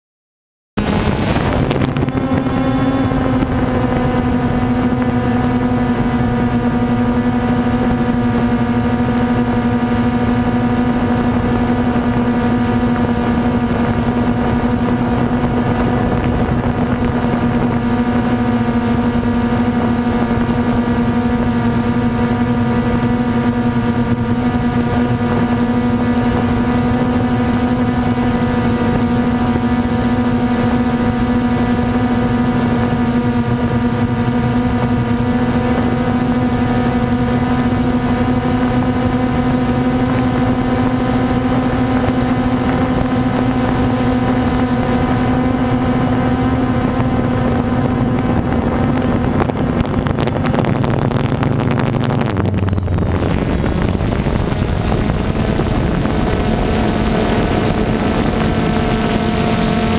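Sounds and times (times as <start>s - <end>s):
drone motors humming: 0.8s - 59.9s
rush of air: 46.5s - 59.9s.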